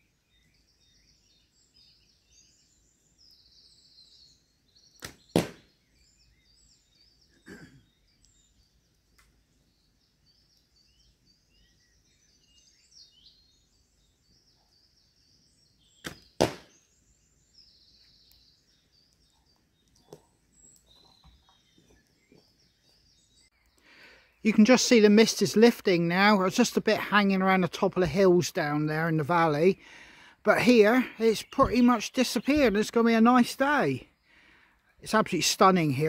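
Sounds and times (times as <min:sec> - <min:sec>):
birdsong: 0:00.0 - 0:36.0
arrow thud: 0:05.0 - 0:05.7, 0:16.0 - 0:16.8
bow string snap: 0:05.0 - 0:05.7.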